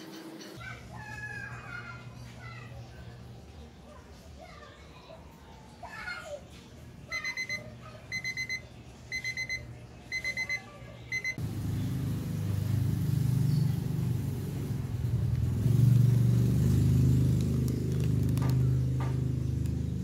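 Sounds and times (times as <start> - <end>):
electronic alarm beeping: 7.1 - 11.4.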